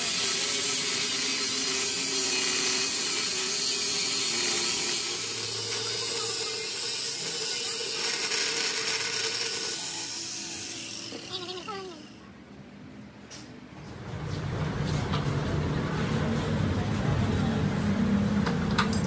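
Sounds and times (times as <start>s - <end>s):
machine hissing and grinding: 0.0s - 12.1s.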